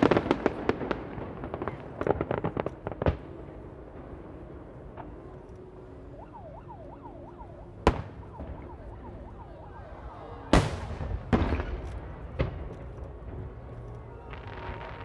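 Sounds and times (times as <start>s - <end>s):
fireworks bursting: 0.0s - 5.2s, 10.4s - 15.0s.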